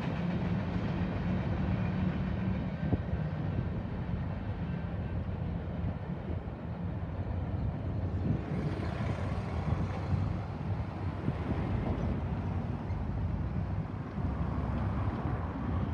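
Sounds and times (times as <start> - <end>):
wind buffeting microphone: 7.5 - 14.4.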